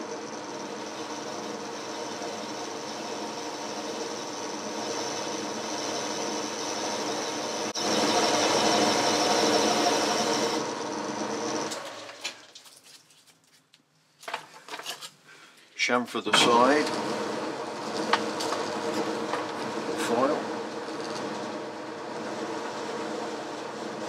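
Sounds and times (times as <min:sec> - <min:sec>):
lathe humming: 0:00.0 - 0:12.4, 0:16.3 - 0:24.0
tool cutting metal: 0:00.0 - 0:12.4
lathe running down: 0:00.0 - 0:12.5, 0:16.3 - 0:24.0.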